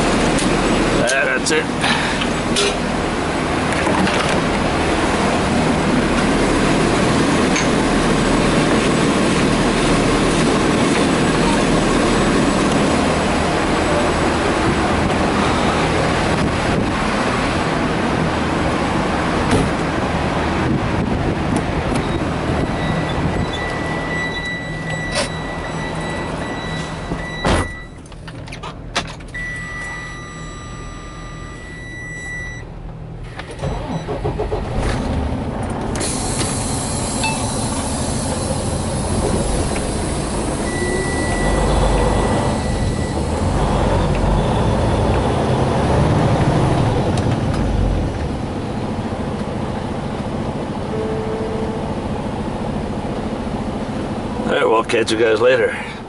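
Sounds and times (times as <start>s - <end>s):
truck engine running: 0.0s - 56.0s
electronic warning beep: 22.0s - 28.0s, 29.4s - 32.7s, 33.3s - 34.2s, 36.9s - 37.7s, 40.6s - 45.0s
air hiss: 36.0s - 40.7s.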